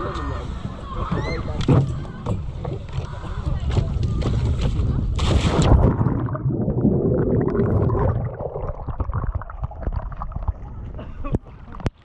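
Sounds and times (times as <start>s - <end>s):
water churning and gurgling: 5.1s - 12.0s
loud splash into water: 5.2s - 9.0s.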